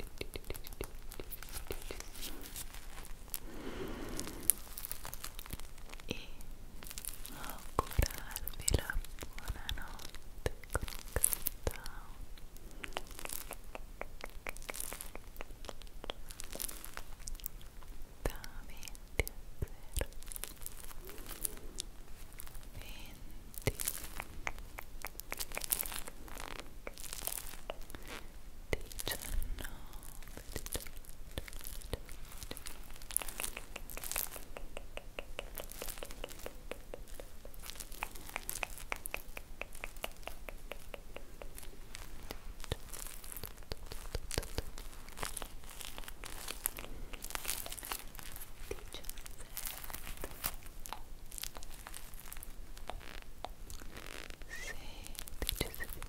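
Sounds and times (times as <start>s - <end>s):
squishy toy crinkling: 23.6s - 29.4s, 30.0s - 56.0s.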